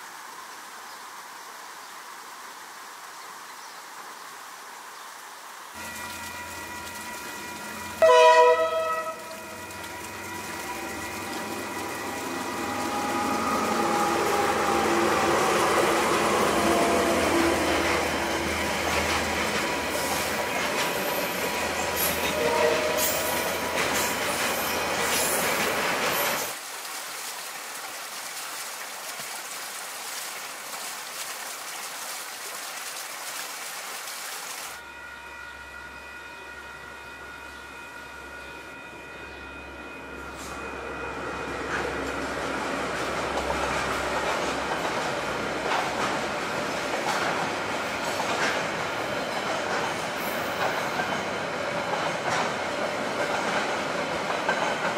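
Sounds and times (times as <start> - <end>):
freight train rumbling and clattering: 9.6 - 26.6, 41.4 - 54.9.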